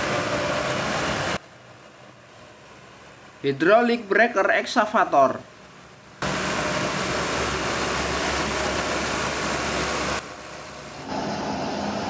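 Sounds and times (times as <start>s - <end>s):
loud machine roar: 0.0s - 1.4s, 6.2s - 12.0s
excavator engine running: 5.8s - 12.0s.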